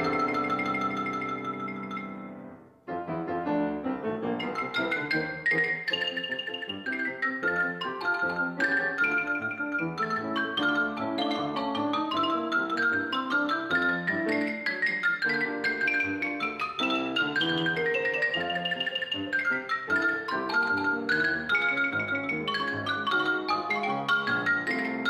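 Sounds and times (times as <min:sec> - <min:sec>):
xylophone runs: 0:00.0 - 0:02.3, 0:04.4 - 0:25.0
grand piano: 0:00.0 - 0:25.0.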